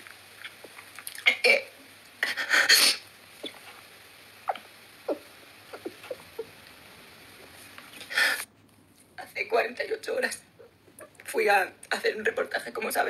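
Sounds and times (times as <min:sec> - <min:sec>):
faint whimpers: 0:04.5 - 0:06.5
sharp sniff: 0:08.0 - 0:08.5.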